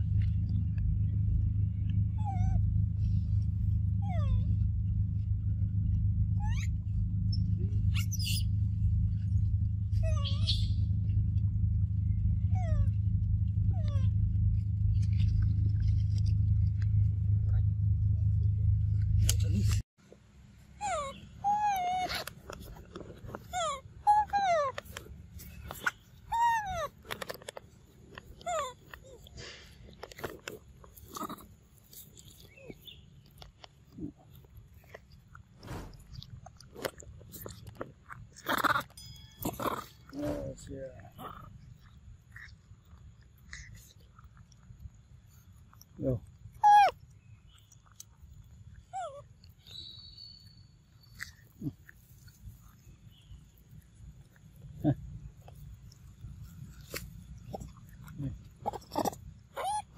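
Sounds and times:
monkey high squeak: 0:06.4 - 0:08.5, 0:10.0 - 0:10.8, 0:20.8 - 0:22.2, 0:23.5 - 0:24.7, 0:25.8 - 0:26.9, 0:46.6 - 0:47.0, 0:58.6 - 0:59.9
monkey low grunt: 0:31.0 - 0:31.6, 0:51.3 - 0:52.0, 0:56.6 - 0:59.9
monkey cooing calls: 0:46.6 - 0:47.0, 0:58.6 - 0:59.9.

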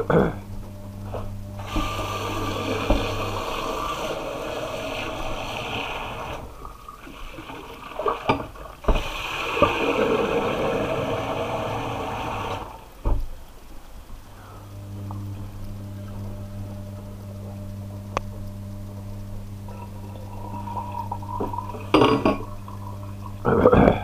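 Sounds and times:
tap water running into tub: 0:01.6 - 0:13.4, 0:19.0 - 0:23.5.

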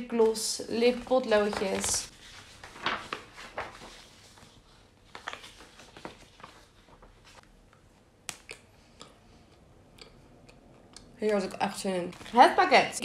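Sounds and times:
paper leaflets rustling: 0:00.0 - 0:07.6
sharp paper crackle: 0:00.3 - 0:07.4.

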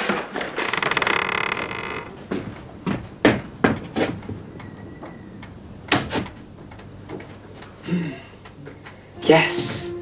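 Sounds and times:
faint high steady tone: 0:09.1 - 0:10.0.

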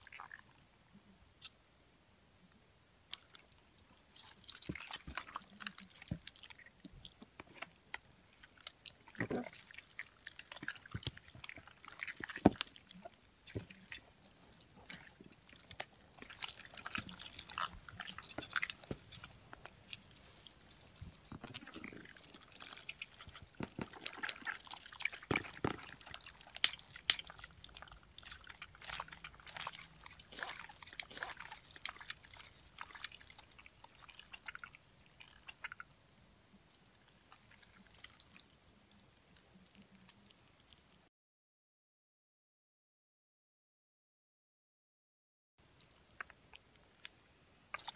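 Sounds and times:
slime squished by hand: 0:08.5 - 0:34.8
sticky clicking and popping: 0:23.1 - 0:27.4.

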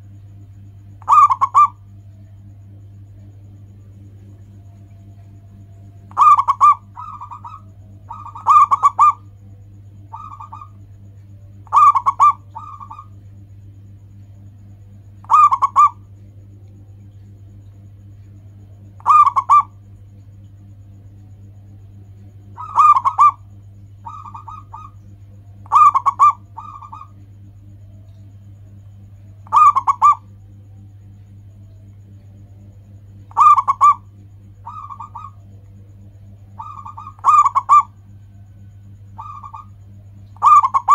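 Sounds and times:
dove cooing: 0:00.9 - 0:02.5, 0:03.2 - 0:13.2, 0:15.2 - 0:16.1, 0:18.8 - 0:19.9, 0:22.3 - 0:30.6, 0:33.1 - 0:40.9.

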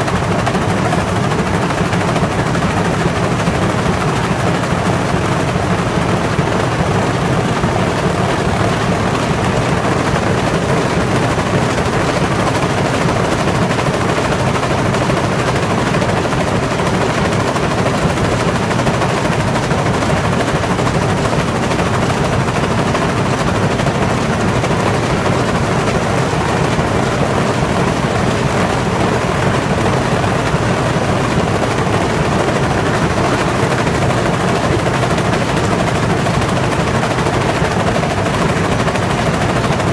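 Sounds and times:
machine rollers clattering: 0:00.0 - 0:39.9.

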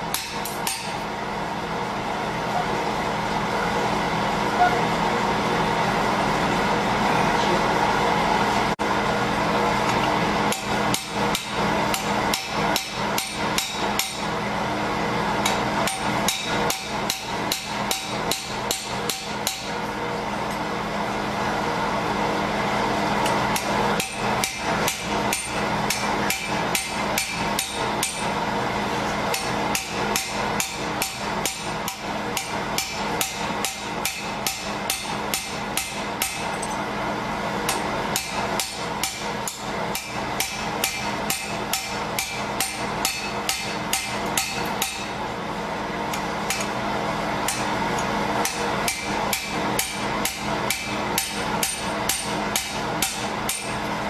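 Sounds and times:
steady background hum: 0:00.0 - 0:54.0.

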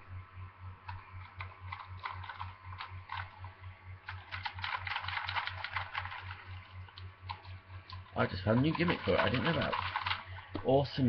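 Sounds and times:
plastic toy clicking and ratcheting: 0:04.1 - 0:06.5, 0:07.3 - 0:10.3.

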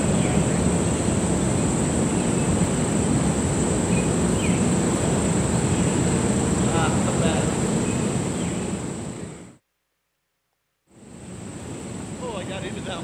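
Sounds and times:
high-pitched insect chorus: 0:00.0 - 0:09.5, 0:11.0 - 0:13.0
wind rumbling on microphone: 0:00.0 - 0:09.5.

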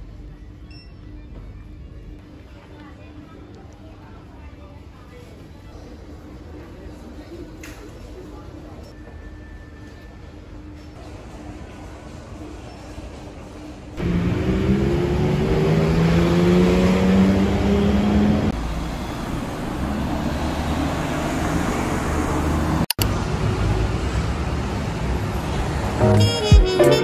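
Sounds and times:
city street traffic: 0:00.0 - 0:27.0
vehicle engine accelerating: 0:14.0 - 0:24.2.

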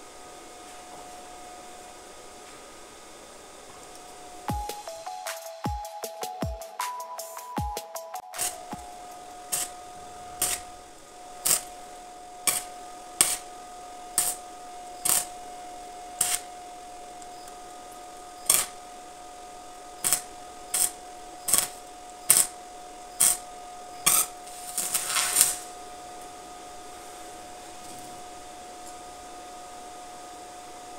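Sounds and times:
steady thin whine: 0:00.0 - 0:30.9
electric arc welding bursts: 0:07.2 - 0:26.0.

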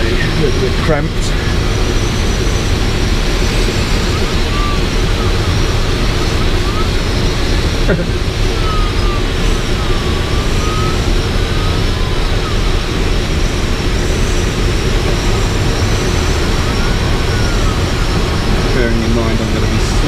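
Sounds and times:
airflow rushing over canopy: 0:00.0 - 0:20.0
faint high whistle: 0:08.6 - 0:13.0.

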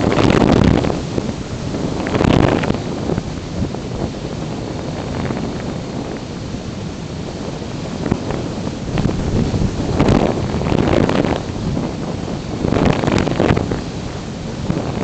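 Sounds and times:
wind noise on microphone: 0:00.0 - 0:15.0.

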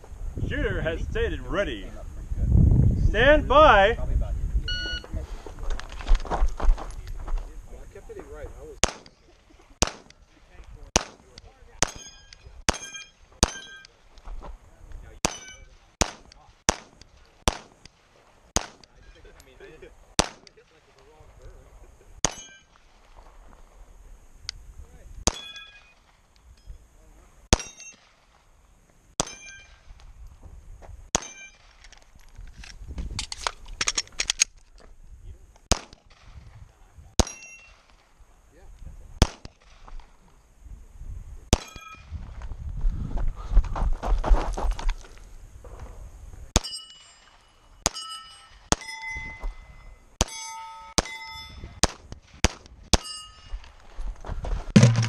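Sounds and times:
pistol shots: 0:08.8 - 0:09.2, 0:09.8 - 0:10.3, 0:11.0 - 0:13.9, 0:15.2 - 0:18.0, 0:18.6 - 0:19.0, 0:20.2 - 0:20.6, 0:22.2 - 0:22.6, 0:25.3 - 0:25.7, 0:27.5 - 0:28.3, 0:29.2 - 0:29.6, 0:31.1 - 0:31.9, 0:35.7 - 0:36.4, 0:37.2 - 0:38.0, 0:39.2 - 0:40.0, 0:41.5 - 0:42.0, 0:51.8 - 0:53.1
steel target ringing: 0:11.8 - 0:13.9, 0:15.2 - 0:15.7, 0:22.2 - 0:22.7, 0:27.6 - 0:28.0, 0:29.2 - 0:29.8, 0:31.2 - 0:31.6, 0:37.2 - 0:37.8, 0:41.6 - 0:42.1, 0:46.6 - 0:51.8, 0:53.0 - 0:53.7
pistol reloading clicks: 0:31.2 - 0:34.6.

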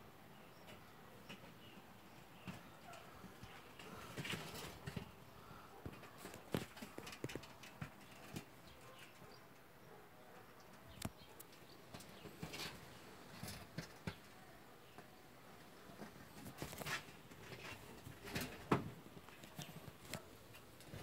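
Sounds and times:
rabbit claws scrabbling in metal bowl: 0:02.5 - 0:09.3, 0:16.0 - 0:21.0.

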